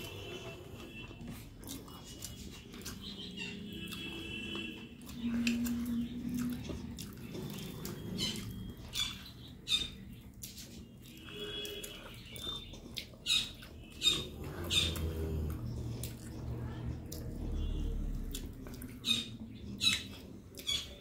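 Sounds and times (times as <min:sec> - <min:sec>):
chewing with mouth closed: 0:00.0 - 0:09.5, 0:10.2 - 0:21.0
fingers mixing food on a plate: 0:00.0 - 0:21.0.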